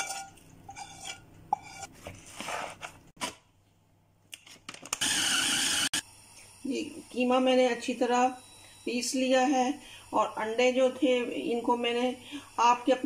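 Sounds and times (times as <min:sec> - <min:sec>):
spoon scraping a bowl: 0:00.0 - 0:02.9
electric food chopper grinding: 0:05.0 - 0:06.0.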